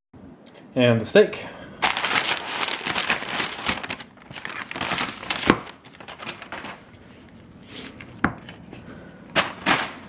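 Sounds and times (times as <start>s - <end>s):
paper crinkling and rustling: 1.8s - 10.0s.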